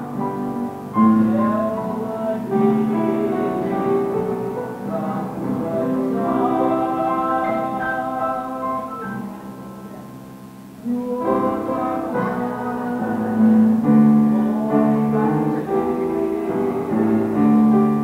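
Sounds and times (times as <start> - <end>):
keyboard accompaniment: 0.0 - 18.0
voices singing long notes: 0.0 - 18.0.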